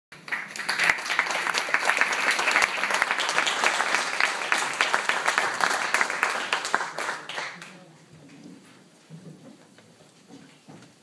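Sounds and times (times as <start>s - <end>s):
audience applauding: 0.1s - 7.8s.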